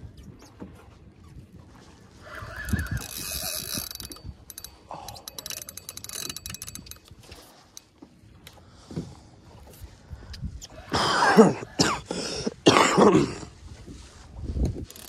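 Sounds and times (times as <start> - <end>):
fishing reel clicking and whirring: 2.5 - 7.9, 14.6 - 15.0.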